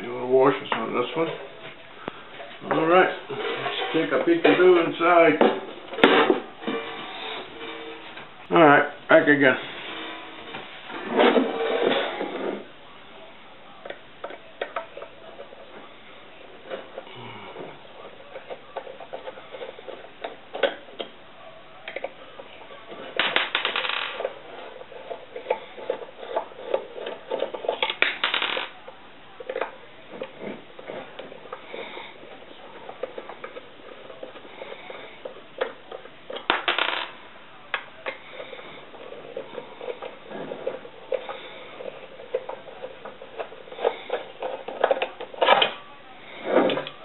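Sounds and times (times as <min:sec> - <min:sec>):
scraping rustles: 0:00.2 - 0:08.3, 0:09.4 - 0:12.7.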